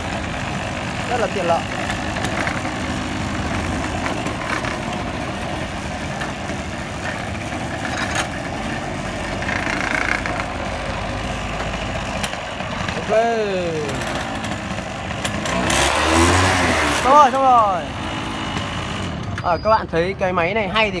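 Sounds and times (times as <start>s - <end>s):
two-stroke engine running: 0.0s - 21.0s.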